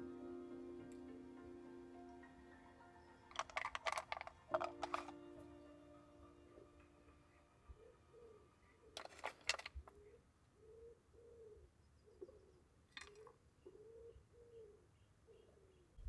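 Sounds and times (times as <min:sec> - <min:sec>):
faint pigeon cooing: 0:07.7 - 0:09.1, 0:09.8 - 0:16.0.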